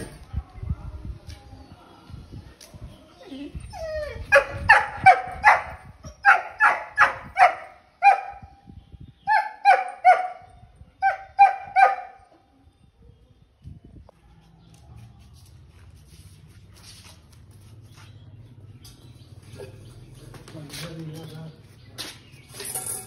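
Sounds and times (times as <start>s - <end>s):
puppy whining: 3.2s - 5.3s
puppy barking: 4.3s - 8.4s, 9.3s - 12.2s.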